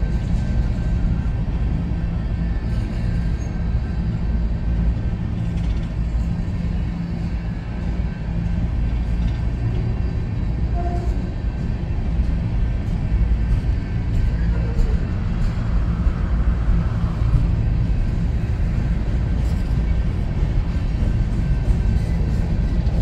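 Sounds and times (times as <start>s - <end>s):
train wheels rumbling on rails: 0.0s - 23.0s
faint clicks from rail joints: 5.0s - 23.0s.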